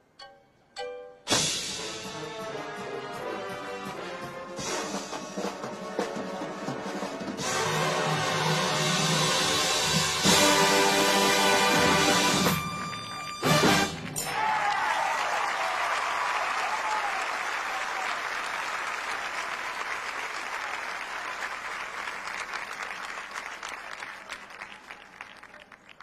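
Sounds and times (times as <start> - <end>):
drum and bugle corps blast: 1.3 - 14.7
crowd applauding and cheering: 10.2 - 26.0
crowd whistling: 12.3 - 18.2.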